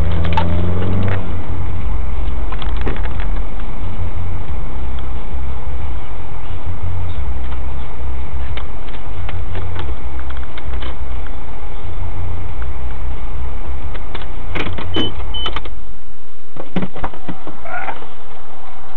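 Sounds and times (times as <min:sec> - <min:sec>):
car engine and road rumble: 0:00.0 - 0:18.9
sharp clicks and knocks: 0:02.2 - 0:03.7, 0:13.9 - 0:15.8.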